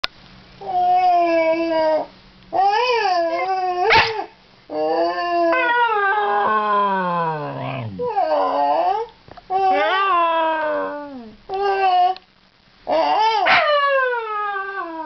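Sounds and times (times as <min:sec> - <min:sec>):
dog howling: 0:04.7 - 0:12.2, 0:12.9 - 0:15.0.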